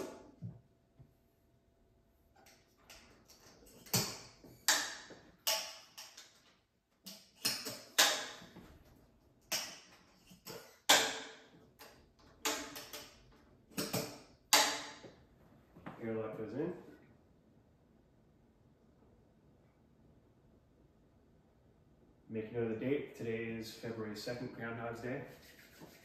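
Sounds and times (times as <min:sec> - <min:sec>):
sharp metallic clicks and taps: 0:09.5 - 0:13.2.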